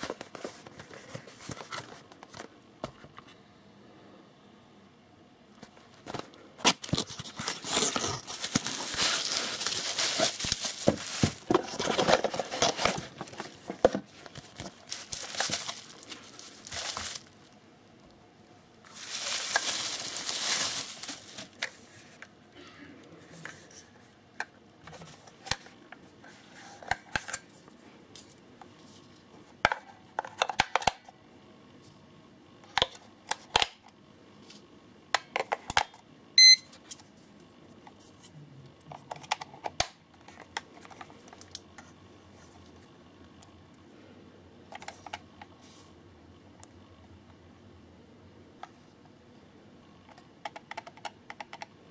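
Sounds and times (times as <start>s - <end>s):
cardboard and bubble wrap rustling: 0.0s - 2.5s, 5.9s - 17.6s, 18.8s - 22.2s.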